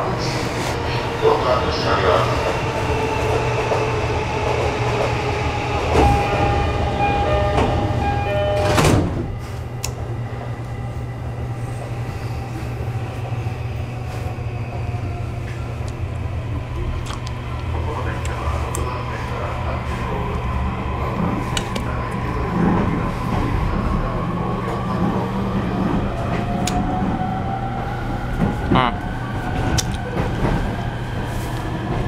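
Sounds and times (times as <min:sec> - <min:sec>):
low hum inside train car: 0:00.0 - 0:32.0
train door chime: 0:06.0 - 0:09.4.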